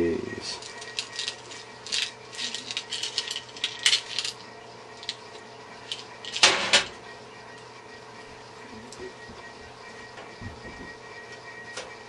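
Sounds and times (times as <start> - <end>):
metal screws clinking and rattling: 0.6 - 4.4.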